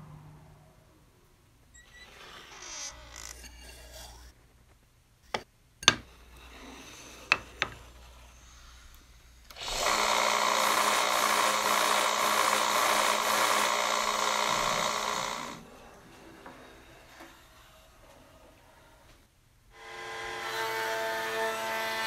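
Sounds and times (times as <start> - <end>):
band saw cutting hardwood: 9.5 - 15.7, 19.8 - 22.0.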